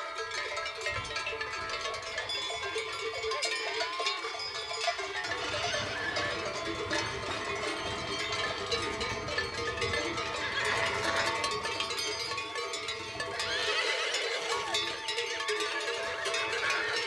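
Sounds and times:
bells clanking and ringing: 0.0 - 17.0
horse whinnying: 5.2 - 9.4, 10.0 - 15.3, 16.0 - 17.0.

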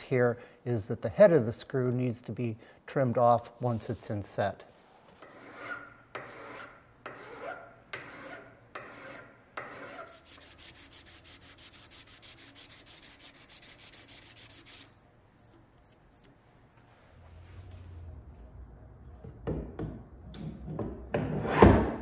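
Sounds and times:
metal file rasping on metal: 5.2 - 14.9
abrasive cloth rubbing metal: 8.2 - 14.9.

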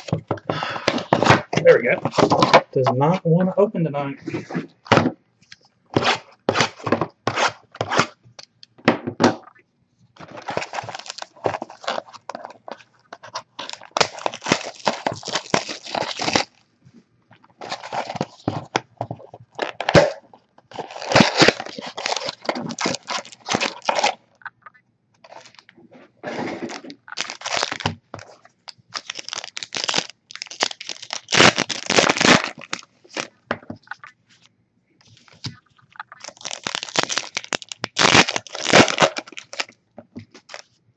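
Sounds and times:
wrapped packs crinkling: 0.0 - 2.9, 10.2 - 16.6, 17.5 - 24.2, 26.5 - 34.1, 35.1 - 40.7
cardboard box tearing: 13.5 - 16.5, 19.7 - 24.2.

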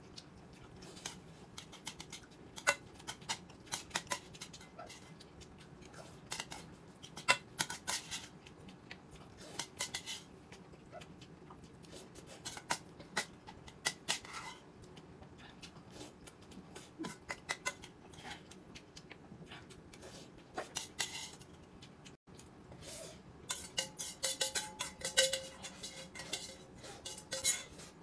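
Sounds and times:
utensils clinking against plates: 23.5 - 28.0.

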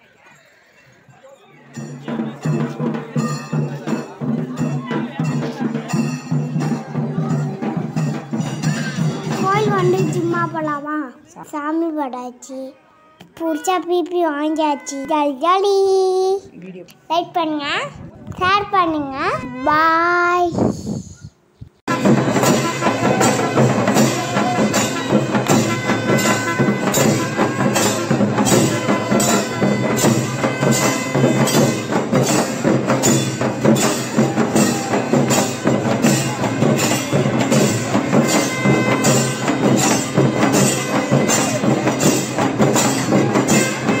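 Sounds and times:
percussion beat: 1.7 - 11.0, 21.9 - 44.0.

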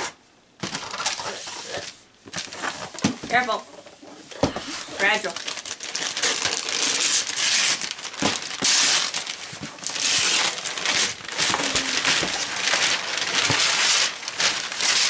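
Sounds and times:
paper crumpling: 4.6 - 15.0
wrapping paper ripping: 4.7 - 15.0.

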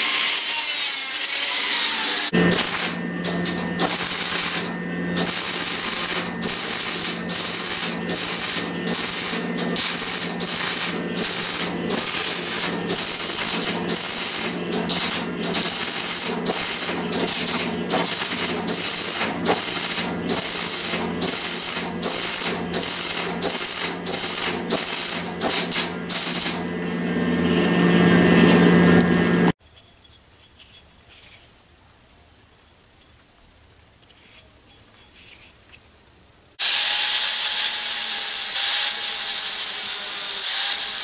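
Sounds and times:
arc welding crackling hiss: 0.0 - 26.6, 36.6 - 41.0.

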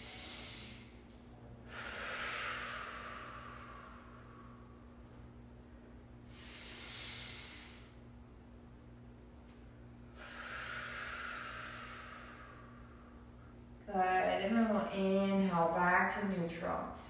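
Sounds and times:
woman breathing: 0.0 - 5.4, 6.1 - 8.2, 10.0 - 13.7
faint steady hum: 0.0 - 17.0.

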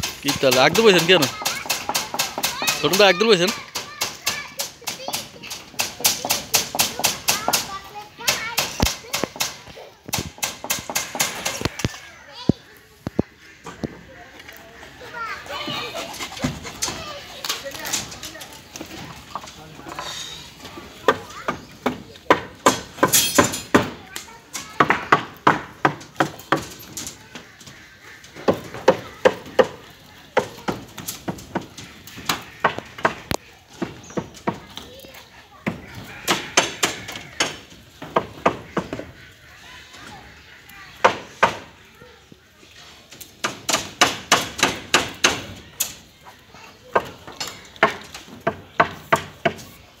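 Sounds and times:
hammer striking steel bars: 22.6 - 23.9.

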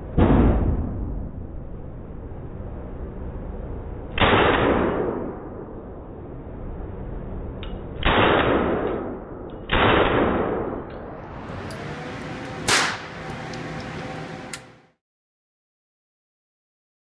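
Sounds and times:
rifle shots echoing: 12.7 - 13.2.

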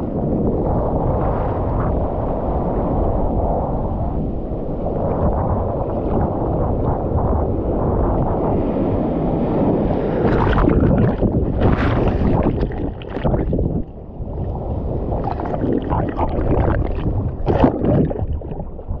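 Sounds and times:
rumble of water: 0.0 - 19.0
wind noise on microphone: 0.0 - 19.0
waves breaking and splashing: 8.3 - 19.0.

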